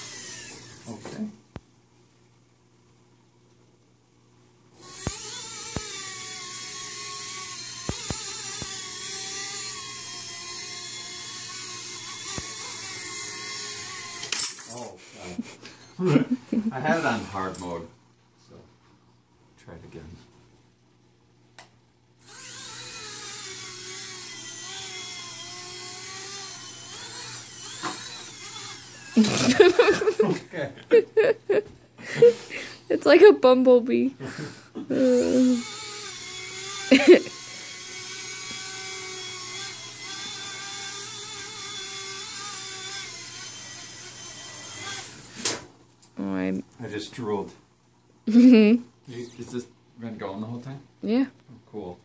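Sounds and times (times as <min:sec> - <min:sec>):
toy helicopter rotor whine: 0:00.0 - 0:01.2, 0:04.8 - 0:15.6, 0:22.2 - 0:30.2, 0:34.9 - 0:45.6.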